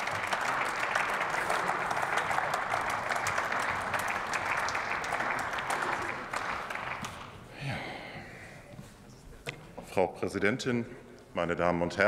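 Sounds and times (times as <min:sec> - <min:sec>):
crowd clapping: 0:00.0 - 0:07.5.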